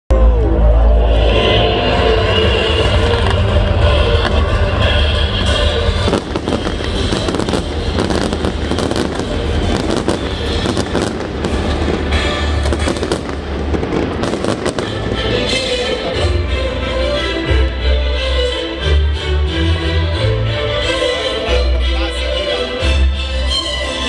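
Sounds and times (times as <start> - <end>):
music playing: 0.1 - 24.0
fireworks bangs and crackles: 2.8 - 16.2.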